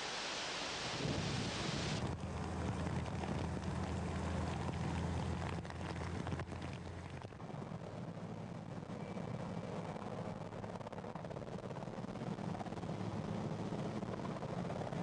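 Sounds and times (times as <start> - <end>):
rushing floodwater hiss: 0.0 - 2.1
vehicle engine humming: 1.8 - 15.0.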